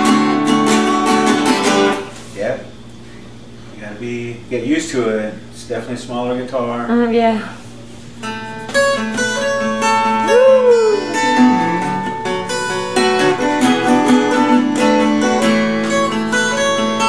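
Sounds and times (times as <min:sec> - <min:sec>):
fingerstyle acoustic guitar: 0:00.0 - 0:02.2, 0:08.2 - 0:17.0.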